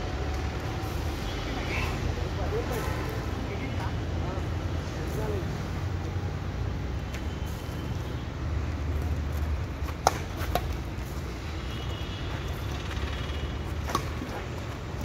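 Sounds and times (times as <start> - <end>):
racquets hitting shuttlecock: 9.7 - 11.4, 12.5 - 15.0.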